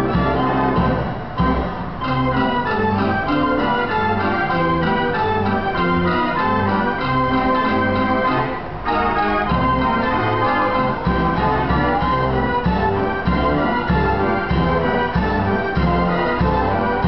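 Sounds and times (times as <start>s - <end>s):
band organ playing a tune: 0.0s - 17.0s.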